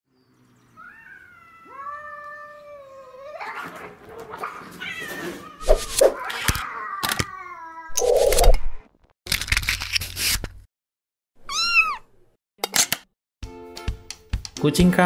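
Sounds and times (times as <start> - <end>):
cats yowling: 0.8 - 8.1, 11.5 - 12.1
cats hissing and scuffling: 0.8 - 8.5.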